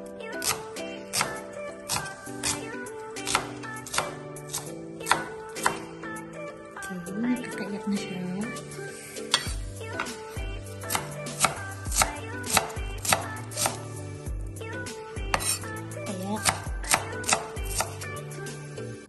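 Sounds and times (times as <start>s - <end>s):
knife chopping on wooden board: 0.4s - 5.8s, 9.3s - 10.2s, 10.9s - 13.8s, 15.3s - 15.6s, 16.4s - 18.0s.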